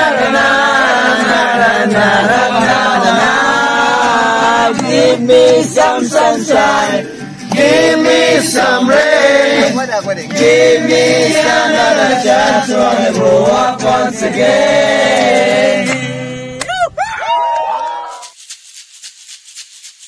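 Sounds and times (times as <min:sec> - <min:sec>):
men singing in chorus: 0:00.0 - 0:16.6.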